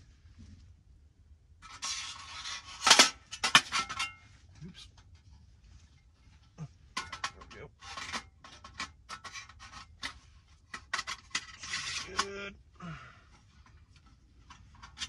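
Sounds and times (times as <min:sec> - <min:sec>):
metal scraping: 0:01.6 - 0:12.5
metal clicks and knocks: 0:06.9 - 0:12.3.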